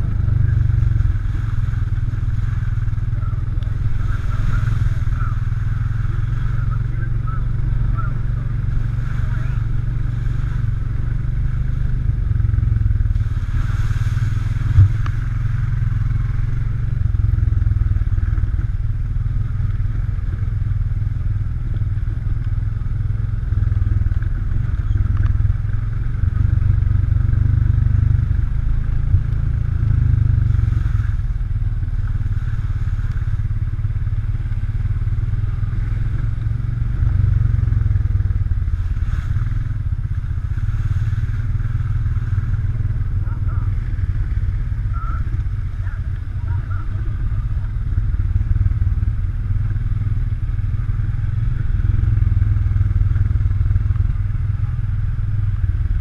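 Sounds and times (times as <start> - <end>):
atv engine running: 0.0 - 56.0.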